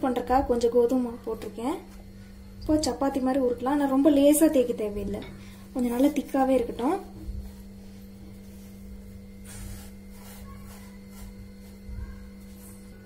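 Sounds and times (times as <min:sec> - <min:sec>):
steady low hum: 0:00.0 - 0:13.0
rolling pin rubbing dough on board: 0:07.0 - 0:13.0.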